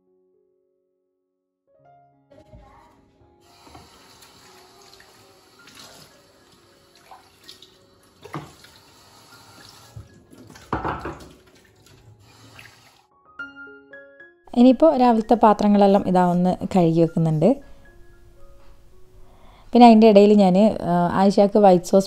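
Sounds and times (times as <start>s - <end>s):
tap water running into sink: 3.4s - 13.0s
dishes clinking: 10.0s - 11.5s.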